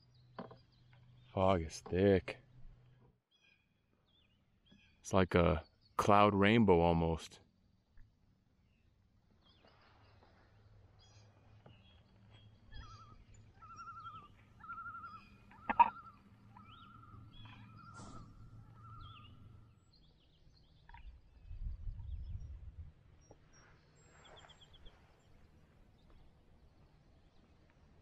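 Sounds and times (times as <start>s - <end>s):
faint bird calls: 9.4s - 22.6s.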